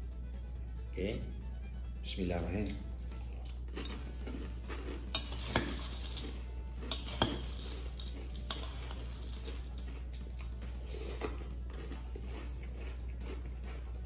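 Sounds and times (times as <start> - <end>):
chewing crunchy cereal: 3.0 - 14.0
spoon stirring cereal and milk: 3.0 - 14.0
spoon clinking against glass: 5.1 - 9.0.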